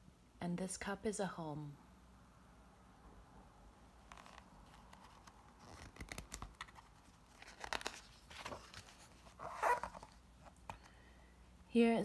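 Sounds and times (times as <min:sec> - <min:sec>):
book page rustling and turning: 0:04.0 - 0:10.9.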